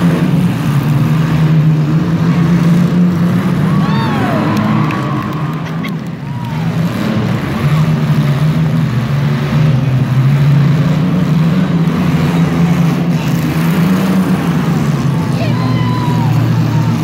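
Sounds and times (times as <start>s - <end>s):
car engines revving loudly: 0.0s - 17.0s.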